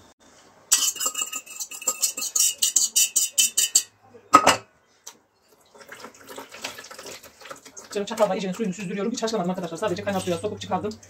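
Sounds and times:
fork scraping metal pot: 0.7 - 3.9, 9.9 - 10.6.

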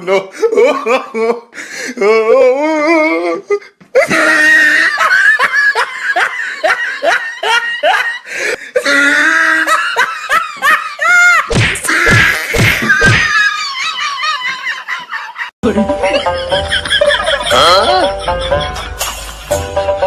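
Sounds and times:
hearty laughter: 4.0 - 11.5, 12.7 - 19.5.

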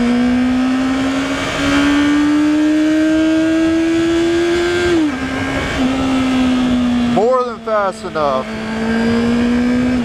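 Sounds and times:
motorcycle engine accelerating: 0.0 - 10.0
wind rush on microphone: 3.7 - 7.2.

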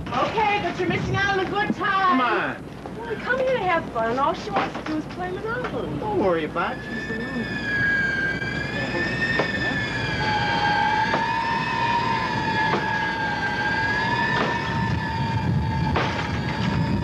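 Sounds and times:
low rumble: 5.2 - 17.0
eerie high wavering tones: 5.3 - 17.0.

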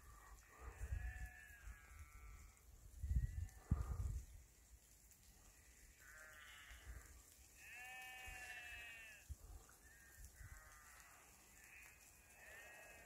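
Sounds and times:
sheep bleating: 0.3 - 2.6, 5.5 - 13.0.

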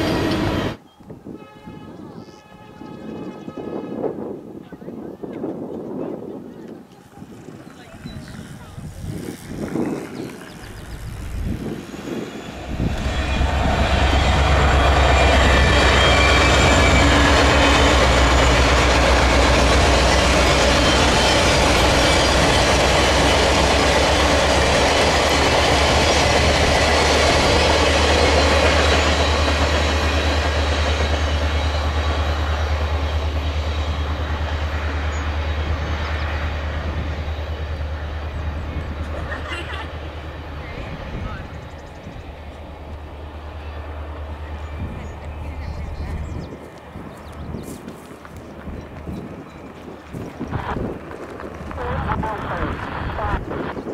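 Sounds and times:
train wheels clattering on rails: 10.8 - 40.2.

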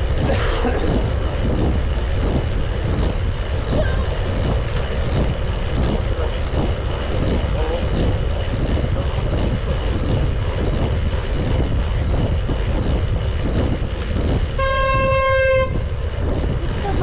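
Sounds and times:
wind and road rush: 0.0 - 17.0
vehicle horn honking: 14.5 - 15.9.

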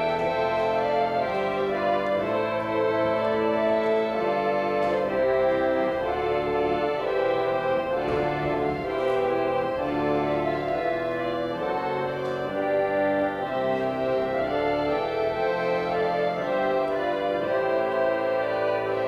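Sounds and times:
organ playing held chords: 0.0 - 19.0.

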